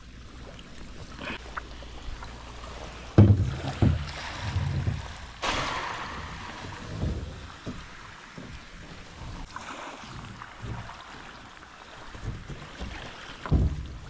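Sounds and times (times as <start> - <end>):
knocks on plastic boat hull: 3.2 - 5.1.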